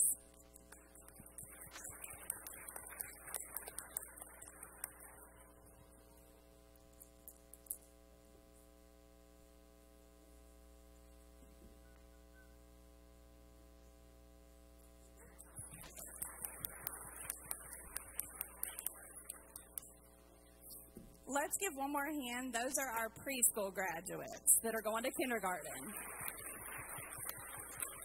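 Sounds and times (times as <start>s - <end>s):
faint hum of held tones: 0.0s - 28.0s
audience applauding: 1.0s - 5.7s, 15.2s - 19.8s, 25.0s - 28.0s.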